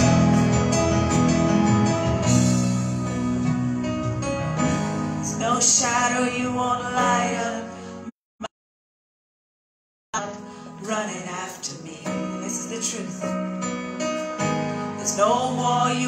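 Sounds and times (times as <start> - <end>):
keyboard: 0.0 - 8.1, 10.2 - 16.0
people singing: 5.4 - 7.7, 15.0 - 16.0.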